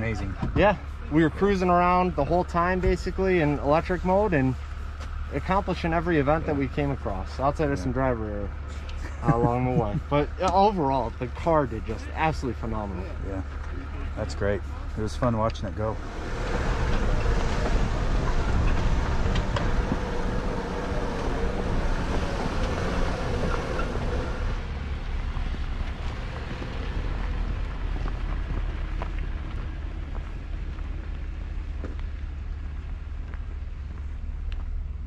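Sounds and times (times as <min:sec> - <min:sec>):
vehicle running: 0:00.0 - 0:35.0
wind rumbling on microphone: 0:15.8 - 0:35.0.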